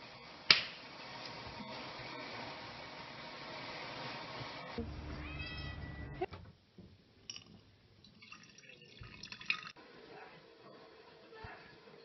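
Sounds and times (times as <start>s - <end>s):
steady hiss: 0.0s - 4.8s
cat meowing: 5.1s - 6.3s.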